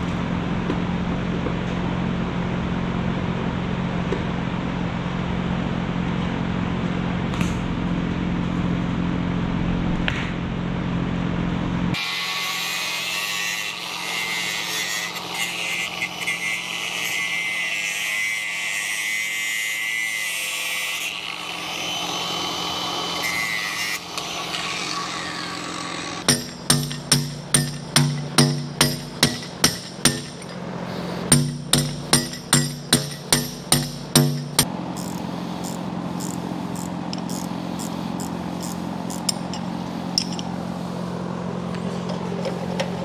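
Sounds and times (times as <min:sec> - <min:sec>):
power saw cutting hose: 0:12.0 - 0:40.2
steady low hum: 0:25.5 - 0:43.0
hammer blows: 0:26.2 - 0:40.5.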